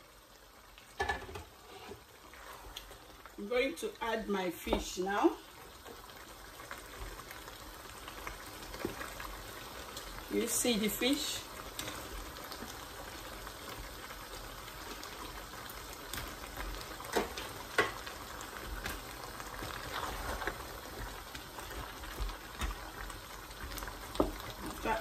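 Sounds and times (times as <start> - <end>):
stew bubbling: 11.4 - 25.0.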